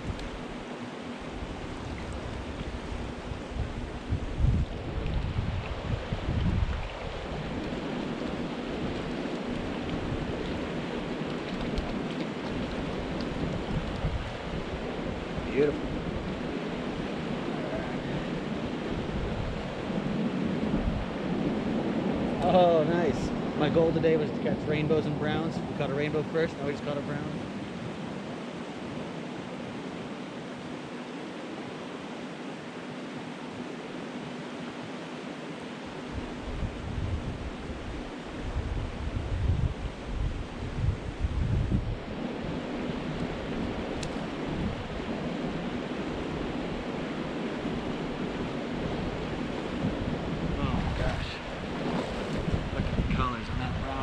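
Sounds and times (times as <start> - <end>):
river flowing over riffle: 0.0 - 54.0
wind rumbling on microphone: 0.0 - 54.0
river water rushing over rocks: 42.0 - 52.7.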